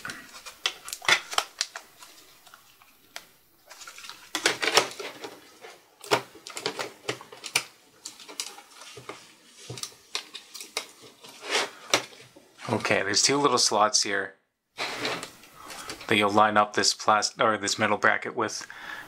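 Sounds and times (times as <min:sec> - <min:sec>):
plastic and metal parts clicking: 0:06.0 - 0:10.9.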